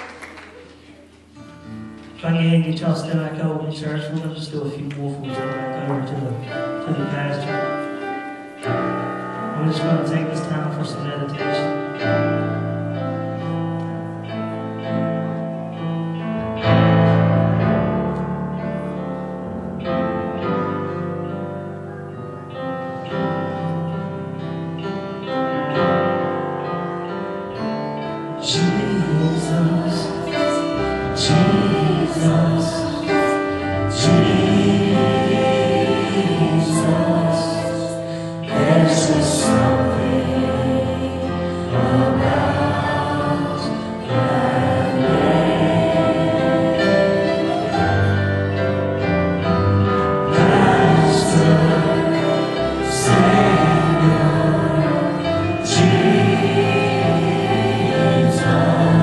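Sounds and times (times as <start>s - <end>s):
held keyboard chords: 0.0s - 59.0s
voices singing: 28.4s - 48.7s, 50.2s - 59.0s.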